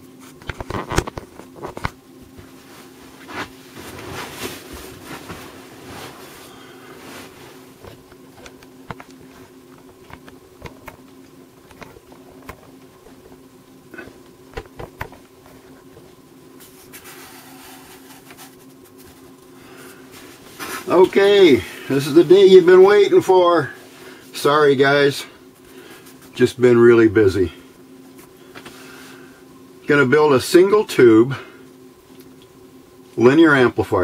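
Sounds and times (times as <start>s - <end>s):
low buzzing hum: 0.0s - 34.0s
paper rustling on tabletop: 16.6s - 19.3s.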